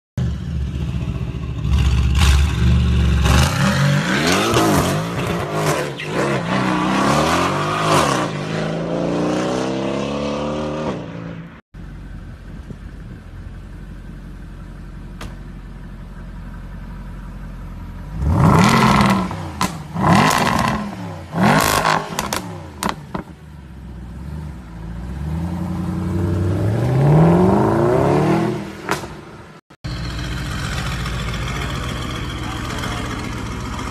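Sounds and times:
car engine revving: 0.2s - 11.5s, 17.9s - 29.2s
car engine idling: 11.8s - 18.4s, 29.8s - 33.9s.

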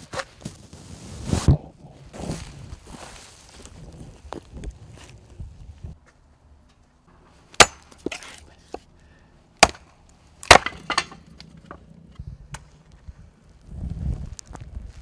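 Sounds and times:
hatchet chopping wood: 7.6s - 8.8s, 9.6s - 11.2s
wood splintering cracks: 9.6s - 11.2s.

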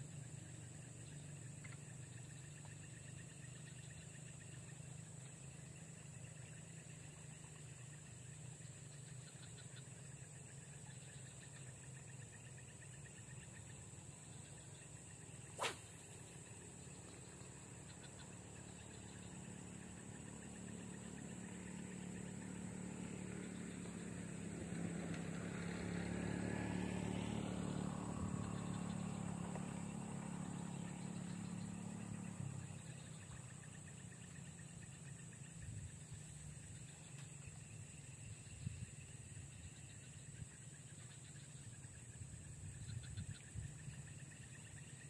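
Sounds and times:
vehicle engine passing: 21.2s - 33.1s.

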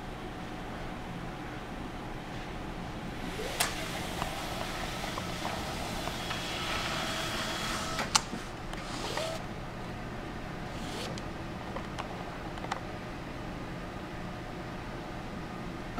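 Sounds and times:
rising motor whines: 3.2s - 8.0s
printer motor whirr: 3.2s - 9.5s, 10.6s - 11.4s.

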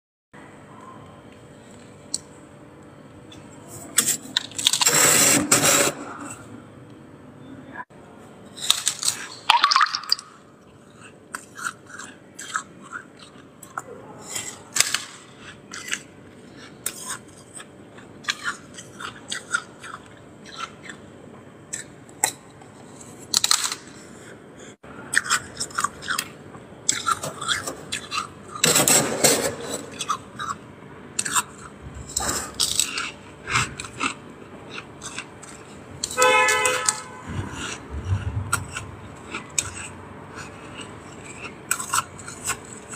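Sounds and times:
crunching frost between teeth: 10.8s - 21.0s, 25.1s - 36.2s, 36.9s - 42.9s.

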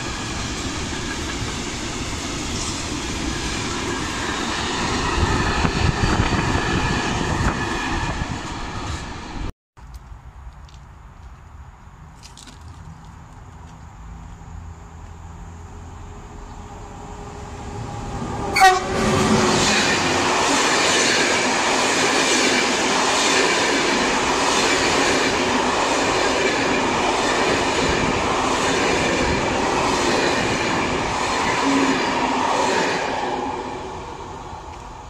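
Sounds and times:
train wheels rumbling on rails: 0.0s - 9.5s, 16.2s - 35.0s
train horn blast: 18.1s - 19.8s.

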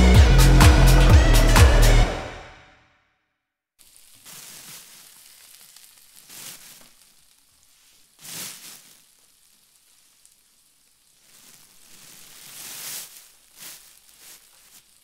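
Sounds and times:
plastic bag rustling: 3.8s - 9.3s, 11.2s - 15.0s
faint steady hiss: 3.8s - 15.0s.

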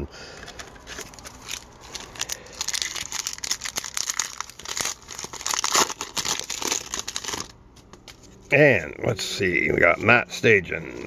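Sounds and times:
card pack wrapper crinkling and tearing: 0.4s - 8.3s.

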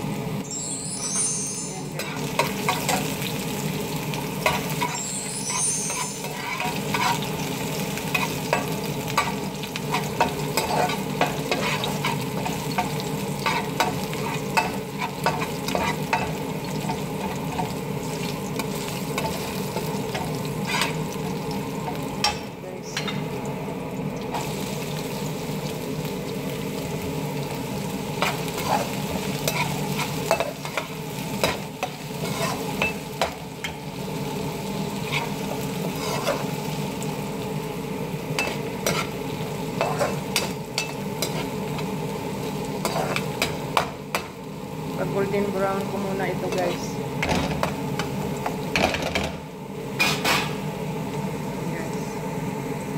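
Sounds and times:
garlic sizzling in hot oil: 0.0s - 52.9s
metal spatula scraping a pan: 4.4s - 17.7s, 18.7s - 21.1s, 28.2s - 33.3s, 35.0s - 36.6s, 38.4s - 39.2s, 42.8s - 43.6s.

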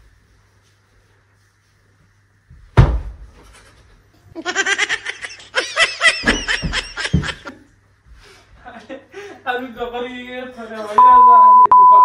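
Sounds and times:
heavy thump: 2.5s - 3.3s
person laughing hard: 4.4s - 7.6s.

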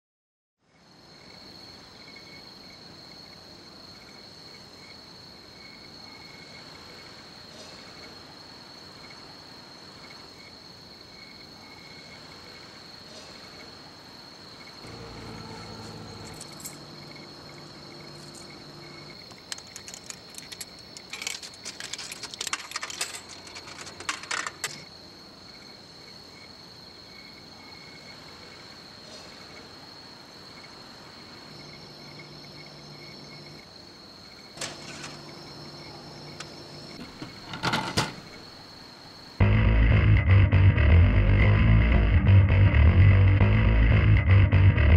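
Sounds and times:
crickets chirping: 0.6s - 39.4s
low hum: 14.8s - 20.5s, 39.4s - 44.9s
metallic clinks and jingling: 15.8s - 17.0s, 19.2s - 24.8s.

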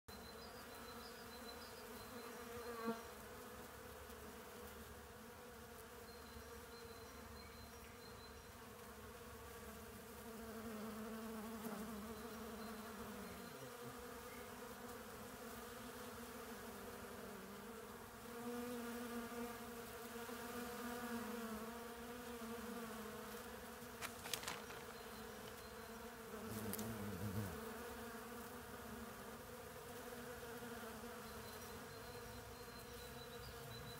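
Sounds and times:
bees buzzing: 8.6s - 33.9s.

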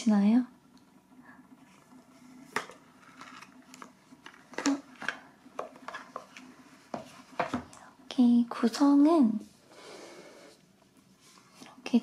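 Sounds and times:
faint steady hum: 0.0s - 12.0s
cardboard and plastic rustling: 2.2s - 7.7s.

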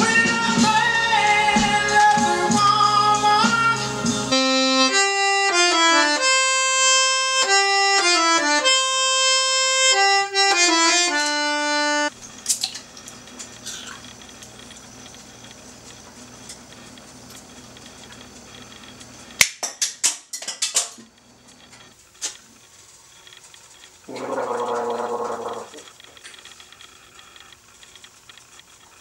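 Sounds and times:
song with singing: 0.0s - 4.5s
accordion melody: 0.0s - 12.2s, 24.1s - 25.8s.

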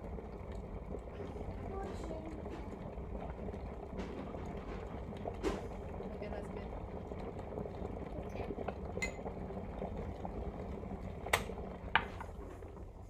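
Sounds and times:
low background hum: 0.0s - 13.0s
metal cup clinking on pot: 9.0s - 9.3s.

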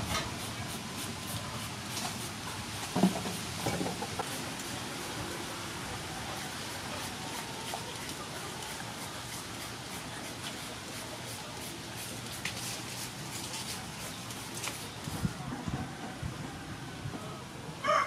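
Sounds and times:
peeler scraping mango: 6.4s - 15.2s.

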